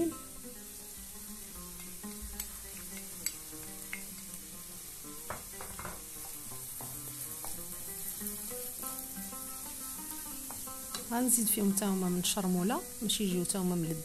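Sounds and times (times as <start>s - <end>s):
mushrooms sizzling in a frying pan: 0.0s - 14.0s
wooden spoon knocking against pan: 5.3s - 7.6s.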